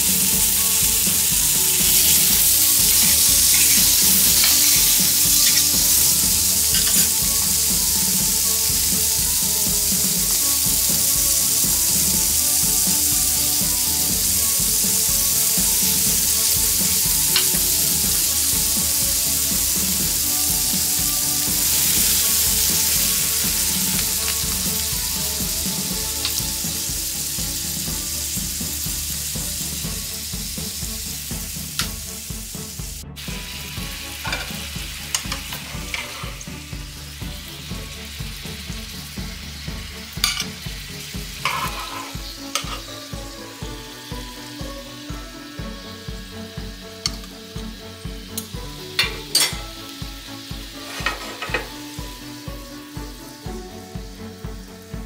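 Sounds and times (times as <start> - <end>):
pan sauce popping and crackling: 0.0 - 32.1, 34.2 - 43.3
chicken sizzling in frying pan: 0.0 - 55.0.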